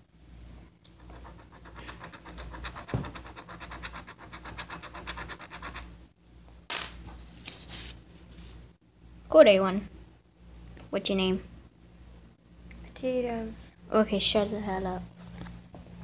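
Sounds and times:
pen scratching on paper: 1.0 - 5.9.

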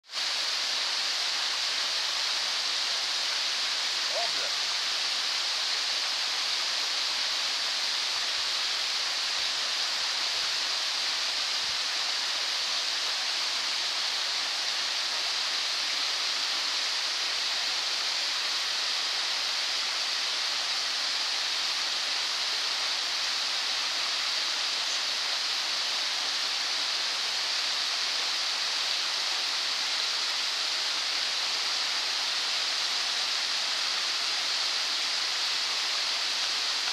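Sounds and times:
stream rushing over stones: 0.0 - 36.9.

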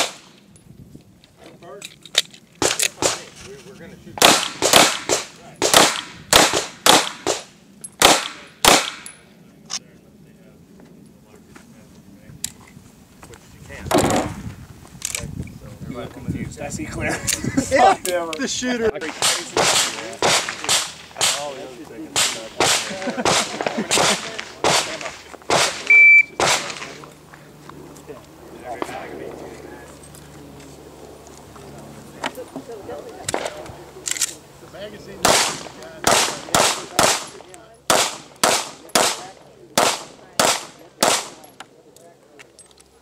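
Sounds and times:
pistol shots with echo: 4.2 - 9.2, 19.1 - 21.5, 22.1 - 27.0, 35.2 - 41.5
high beep: 25.9 - 26.4.

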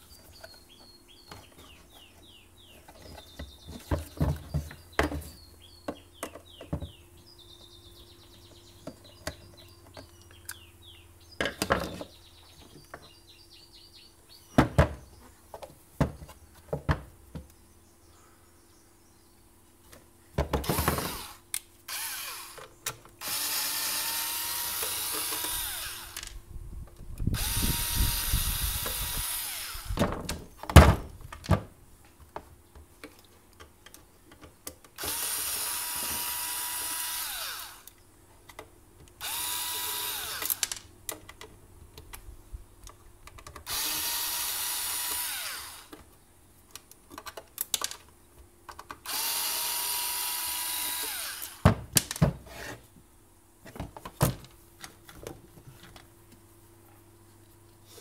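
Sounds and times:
electric screwdriver whirring: 20.6 - 22.6, 23.2 - 26.3, 27.4 - 30.0, 35.0 - 37.9, 39.2 - 40.7, 43.7 - 45.9, 49.0 - 51.6.

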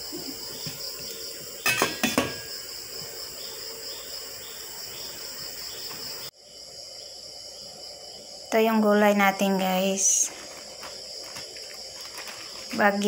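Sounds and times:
steady high hiss: 0.0 - 13.0
metal lid clanking on pot: 1.6 - 2.5.

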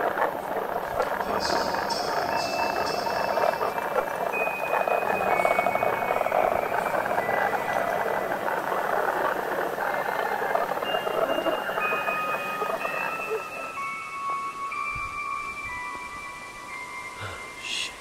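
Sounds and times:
crackling radio static: 0.0 - 14.0
thin high electronic tones: 0.3 - 18.0
low electronic tone: 17.1 - 18.0.

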